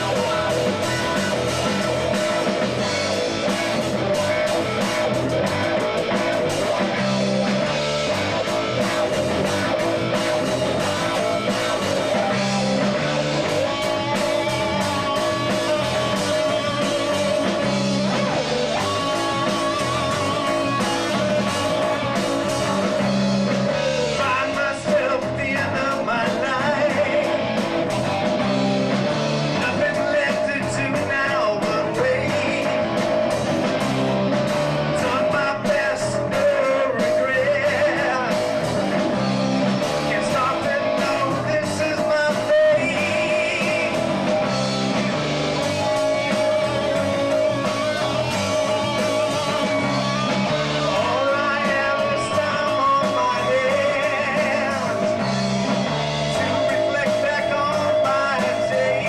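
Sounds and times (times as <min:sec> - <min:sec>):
person singing: 0:00.0 - 0:05.2, 0:08.2 - 0:27.7, 0:29.6 - 0:33.3, 0:34.8 - 0:39.2, 0:40.0 - 0:44.5, 0:45.6 - 0:59.0
drum kit beat: 0:00.0 - 0:59.0
electric bass: 0:00.0 - 0:59.0
electric guitar: 0:00.0 - 0:59.0.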